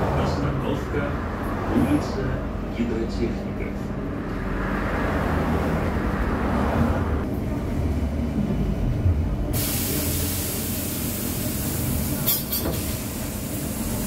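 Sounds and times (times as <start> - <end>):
trolleybus rumble and rolling noise: 0.0 - 14.0
steady hiss of air: 9.6 - 14.0.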